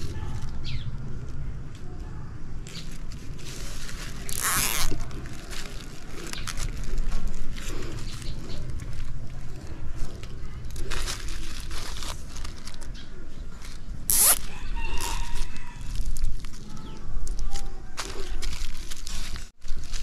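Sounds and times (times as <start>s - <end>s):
plastic wrap rustling: 2.8s - 13.0s, 18.0s - 20.0s
cable tie zip: 4.2s - 5.0s, 14.1s - 15.2s.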